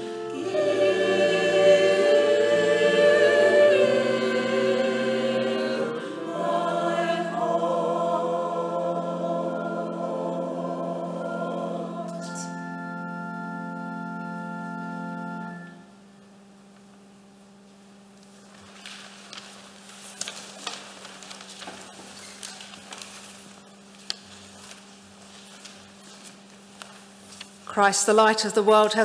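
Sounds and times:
choir and organ chord: 0.0 - 16.1
faint steady hum: 0.0 - 29.0
rustling robes and paper: 18.2 - 27.9.

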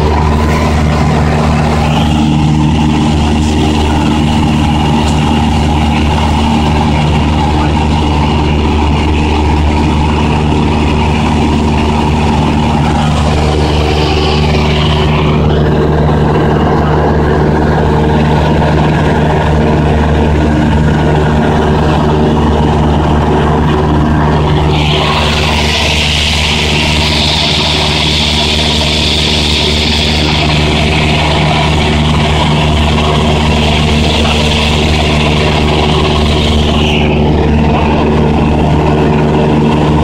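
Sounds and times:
small plane engine humming: 0.0 - 40.0
airflow hiss: 24.4 - 38.0.

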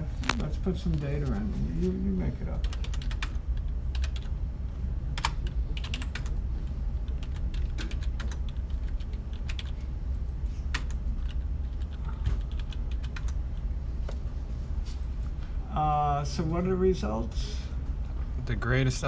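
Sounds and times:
steady low hum: 0.0 - 19.0
computer keyboard keys clicking: 2.6 - 4.3, 5.2 - 6.4, 7.0 - 9.8, 10.7 - 13.4.

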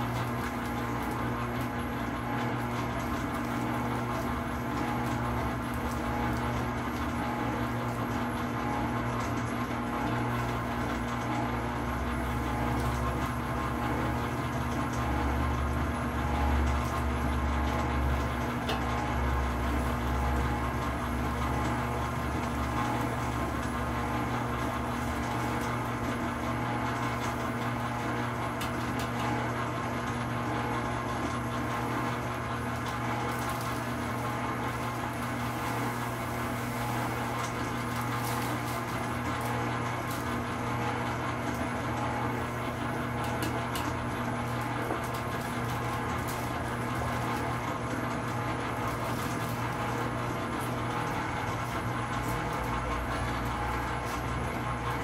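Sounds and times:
stand mixer motor humming: 0.0 - 55.0.

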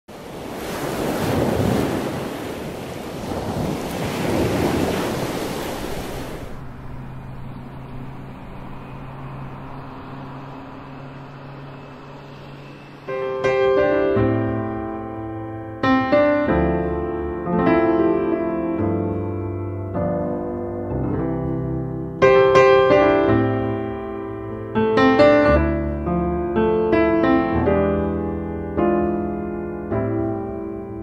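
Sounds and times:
rushing surf-like noise: 0.1 - 20.8
low held tone: 6.4 - 30.2
piano single notes: 6.5 - 31.0.

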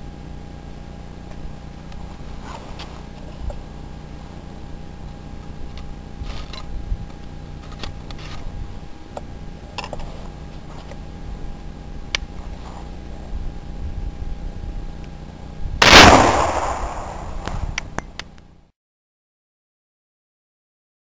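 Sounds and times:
camera rubbing against clothing: 2.0 - 3.6, 12.3 - 13.3.

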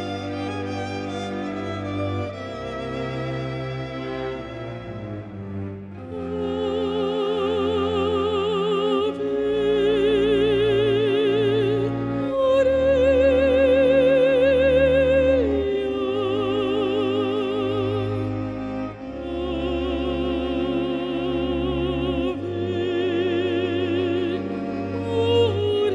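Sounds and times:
woman singing opera: 6.0 - 18.3, 19.2 - 25.9.

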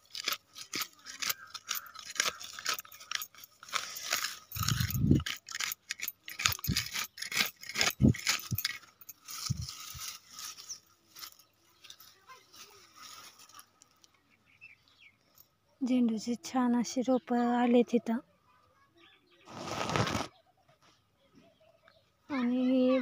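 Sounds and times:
scrapes: 0.0 - 13.8, 19.5 - 20.3
dry grass and leaves rustling: 0.0 - 14.3, 19.5 - 20.3.

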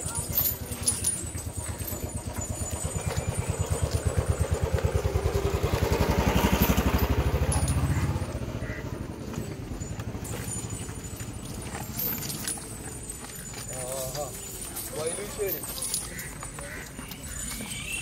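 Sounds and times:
motorcycle engine low putter: 0.0 - 13.8.

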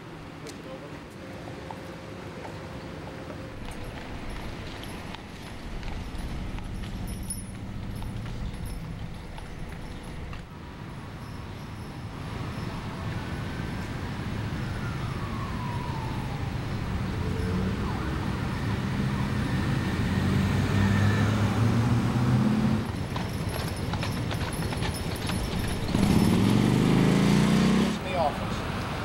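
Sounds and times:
traffic passing: 0.0 - 29.0
vehicle passing close: 12.7 - 23.2, 24.9 - 29.0.

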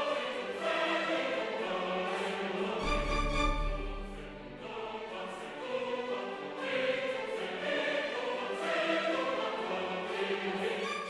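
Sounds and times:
choir singing classical music: 0.0 - 11.0.

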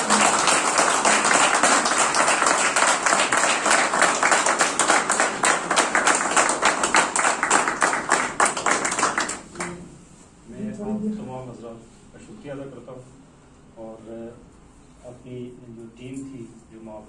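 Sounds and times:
audience applauding: 0.0 - 9.7.

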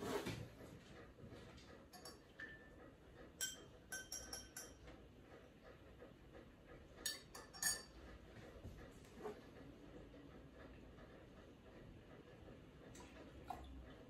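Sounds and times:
glassware and bar spoon clinking: 3.4 - 4.8, 7.1 - 7.9.

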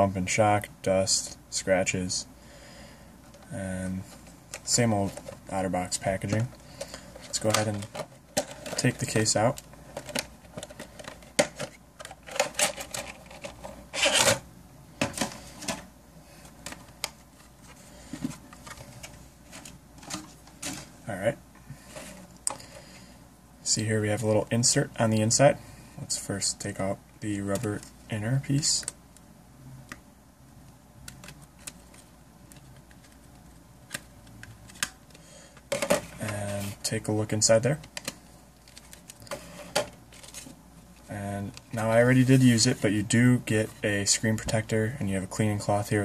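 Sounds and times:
plastic rustling: 4.0 - 14.4, 37.8 - 42.8.

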